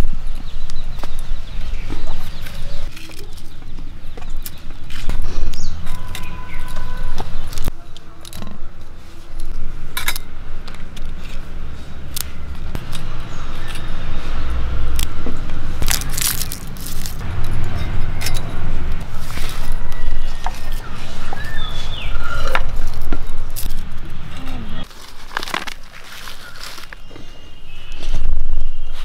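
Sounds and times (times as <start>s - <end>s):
dry rustling of chilies: 15.8s - 17.3s, 19.0s - 29.0s.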